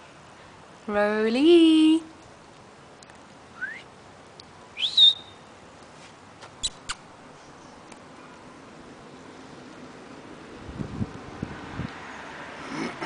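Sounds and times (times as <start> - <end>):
person whistling for dog: 3.6 - 3.9, 4.8 - 5.3.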